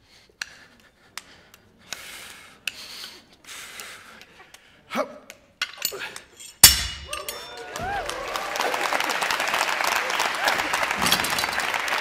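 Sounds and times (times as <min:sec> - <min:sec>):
heavy breathing: 0:00.0 - 0:05.1.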